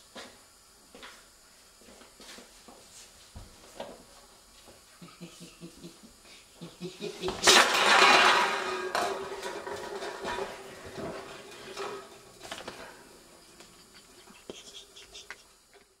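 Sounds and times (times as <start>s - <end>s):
cans rolling on wooden floor: 7.0s - 15.0s.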